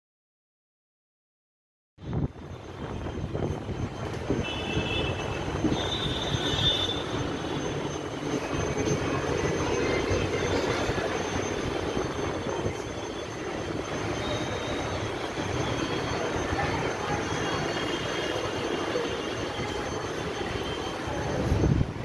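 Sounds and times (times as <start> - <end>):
high squealing: 5.0 - 21.6.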